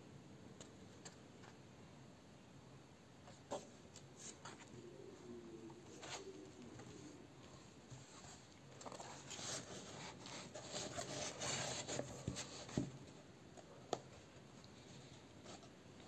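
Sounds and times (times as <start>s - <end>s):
book rubbing and rustling: 7.8s - 13.2s.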